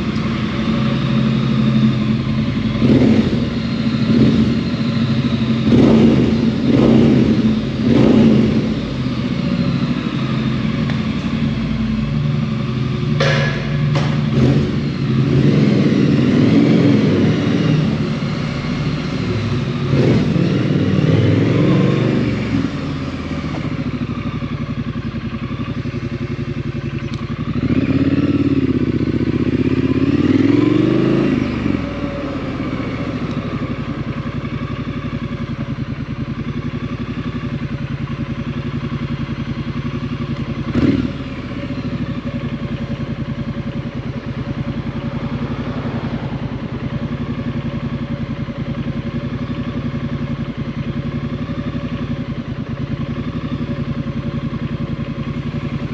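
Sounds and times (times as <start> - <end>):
motorcycle engine revving: 0.0 - 55.9
sharp clack: 13.1 - 14.5.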